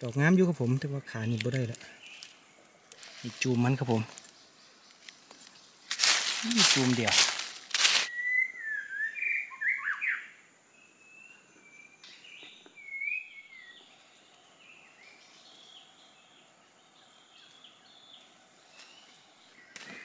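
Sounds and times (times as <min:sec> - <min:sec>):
birds whistling calls: 0:08.1 - 0:10.4, 0:11.1 - 0:13.9.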